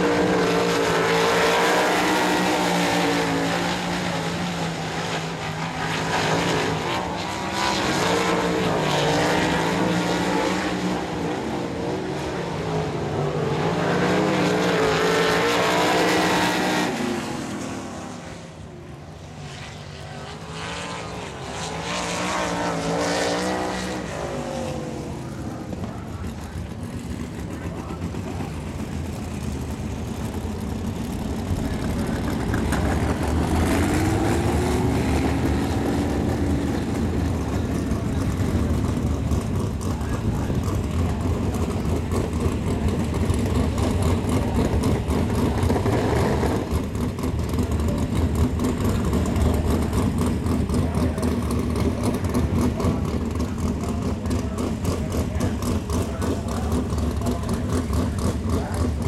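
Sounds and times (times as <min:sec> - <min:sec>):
engine revving past: 0:00.0 - 0:18.5, 0:19.4 - 0:25.8, 0:31.4 - 0:47.6
race car engines revving: 0:00.0 - 0:59.0.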